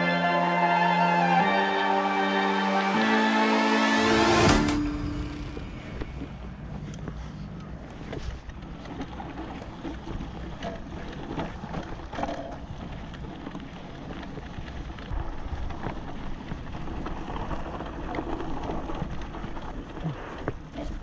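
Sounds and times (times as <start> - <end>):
bike knocking and rattling: 4.4 - 21.0.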